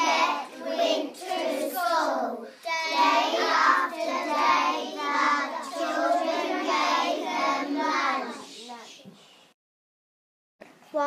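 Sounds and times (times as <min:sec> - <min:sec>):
children reading aloud in unison: 0:00.0 - 0:09.1.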